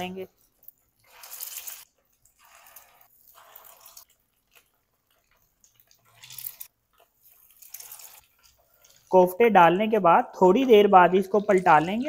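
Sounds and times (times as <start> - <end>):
food sizzling in oil: 0.4 - 9.4.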